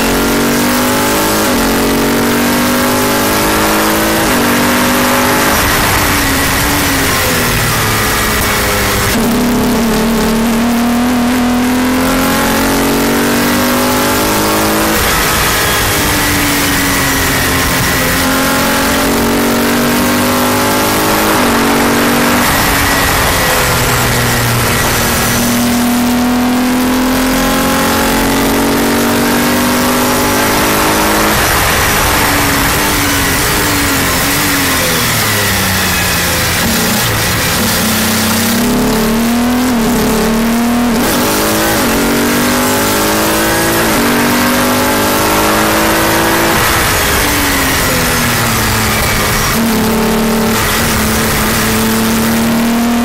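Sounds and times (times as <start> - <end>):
race car engine at speed: 0.0 - 53.0
wind rush: 21.2 - 25.8.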